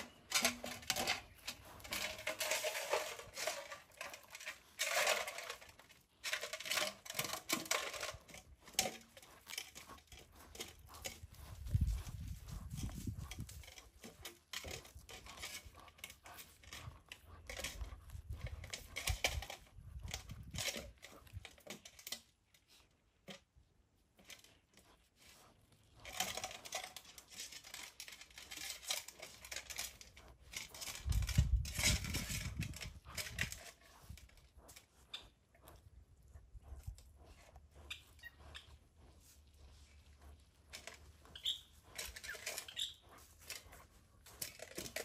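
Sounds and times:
animal gnawing on bone: 0.0 - 45.0.

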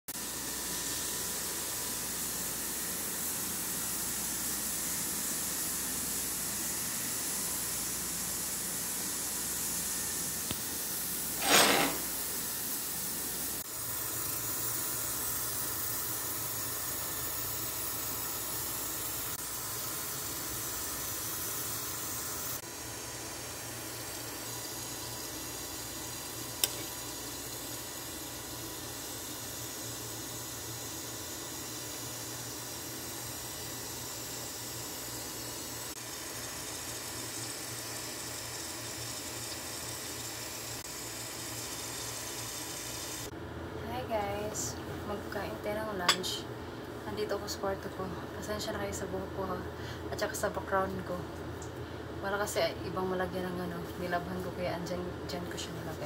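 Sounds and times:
soup simmering hiss: 0.2 - 43.3
sharp click: 26.6 - 26.9.

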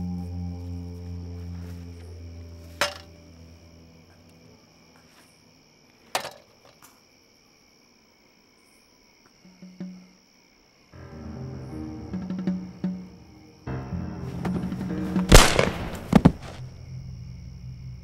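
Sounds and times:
low music drone: 0.0 - 4.6, 11.0 - 18.0.

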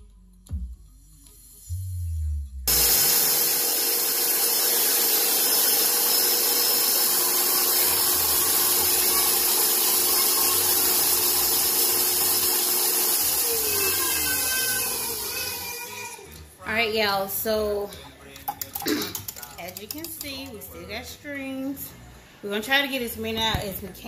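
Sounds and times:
stand mixer motor whine: 2.7 - 16.2.

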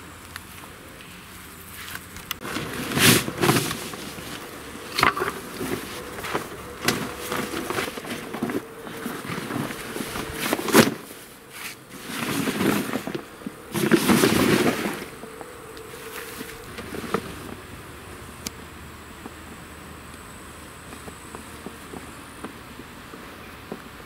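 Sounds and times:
boat fabric rustling and flapping: 1.7 - 18.1.

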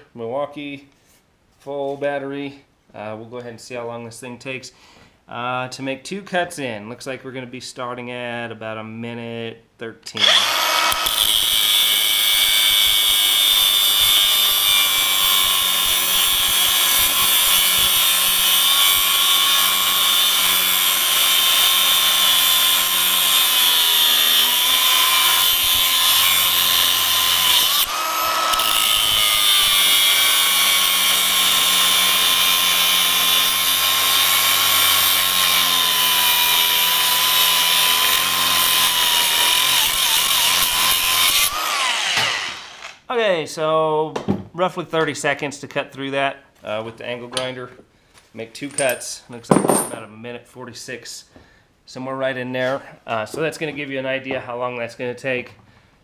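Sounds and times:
angle grinder cutting steel chain: 10.2 - 43.0.

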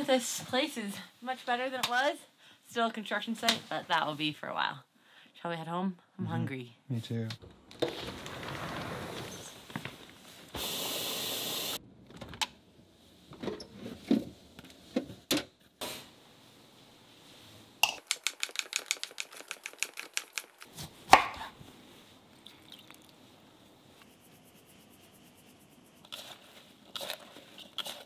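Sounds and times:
short burst of hiss: 10.5 - 11.8.

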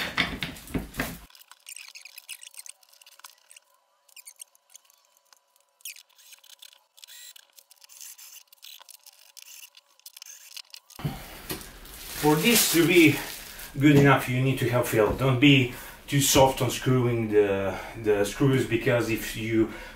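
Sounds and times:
screws clicking and scratching: 1.3 - 11.0.

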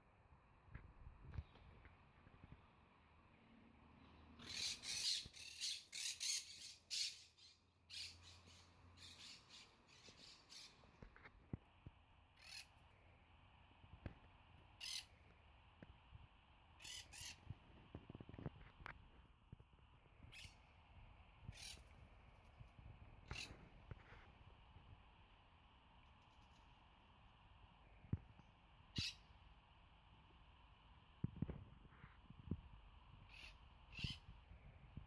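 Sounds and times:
parrots squawking: 4.4 - 10.8, 12.4 - 12.7, 14.8 - 15.1, 16.8 - 17.4, 21.5 - 21.8.

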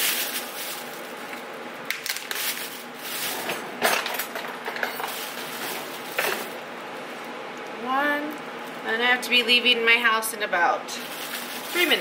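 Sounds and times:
items rustling on counter: 0.0 - 7.2, 11.0 - 12.0.

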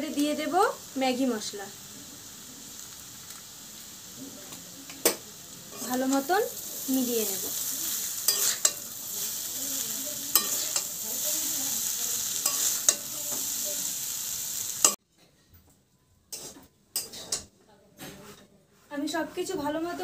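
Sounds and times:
noodles sizzling in a pan: 0.0 - 15.0
metal spatula clacking on pan: 10.3 - 10.9.

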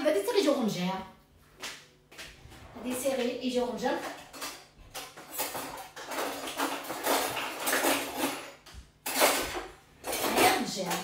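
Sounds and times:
metal cutlery clattering in drawer: 3.8 - 11.0.

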